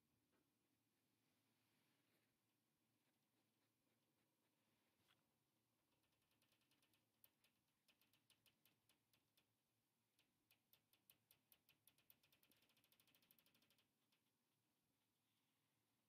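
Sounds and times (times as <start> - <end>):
small clicks: 5.9 - 14.4.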